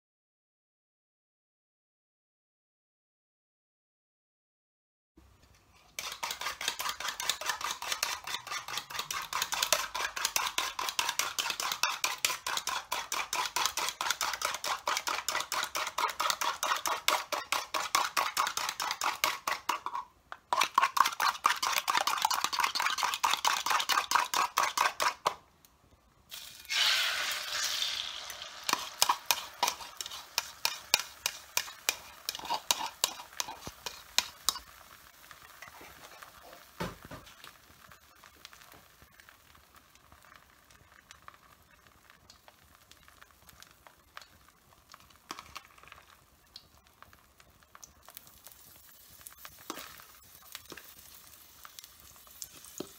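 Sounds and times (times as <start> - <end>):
fork scraping frying pan: 5.9 - 25.3, 26.7 - 34.8
fork beating eggs in glass bowl: 5.9 - 25.4, 28.6 - 34.7
egg sizzling in hot oil: 5.9 - 25.5, 26.3 - 52.9.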